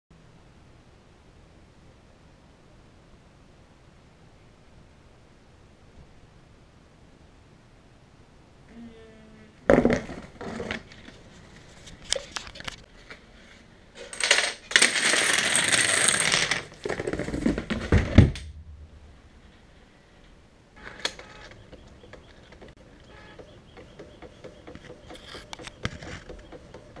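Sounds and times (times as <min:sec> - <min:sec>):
small pieces clattering on wooden floor: 0:14.0 - 0:18.1
scattered clicks: 0:20.8 - 0:27.0.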